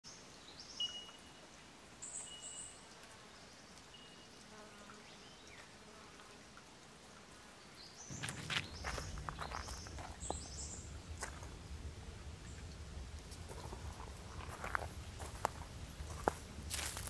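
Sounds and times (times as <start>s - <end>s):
faint high-pitched chirps: 0.7s - 1.4s
footsteps on a forest track: 8.1s - 11.8s, 12.5s - 17.0s.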